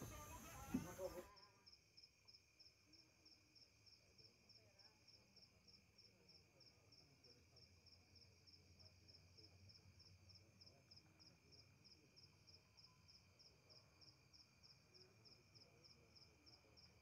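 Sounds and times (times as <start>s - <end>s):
high insect drone: 0.0s - 4.6s
insects chirping: 0.0s - 17.0s.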